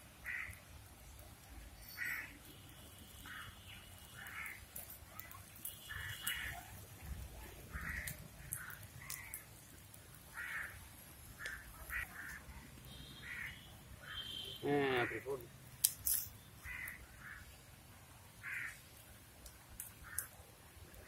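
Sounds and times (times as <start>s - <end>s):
crows cawing: 0.2s - 0.6s, 1.9s - 2.4s, 3.2s - 4.6s, 5.8s - 6.7s, 7.7s - 9.5s, 10.3s - 10.8s, 11.4s - 12.4s, 13.1s - 15.4s, 16.6s - 17.5s, 18.4s - 18.8s, 20.0s - 20.3s
faint sharp ticks: 19.4s - 20.4s.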